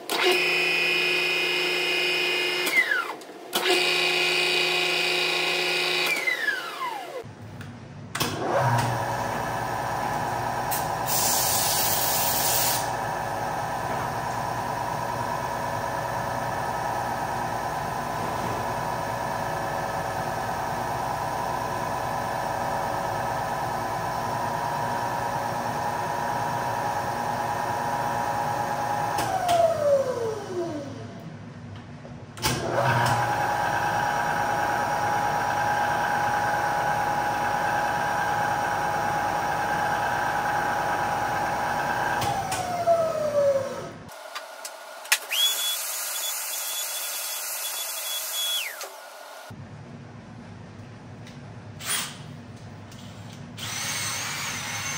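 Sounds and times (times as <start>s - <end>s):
electric drill motor running: 45.2s - 49.5s, 53.6s - 54.9s.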